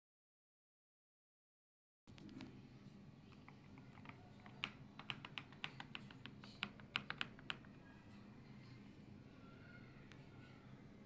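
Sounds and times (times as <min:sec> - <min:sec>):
mechanical keyboard key clicks: 0:03.8 - 0:07.7.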